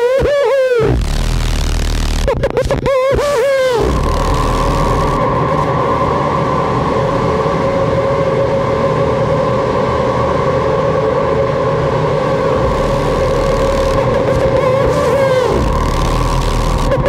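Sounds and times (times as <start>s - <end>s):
steady feedback tone: 0.0s - 17.0s
low rumble: 0.9s - 2.5s, 3.8s - 17.0s
fainter higher feedback tone: 3.6s - 17.0s.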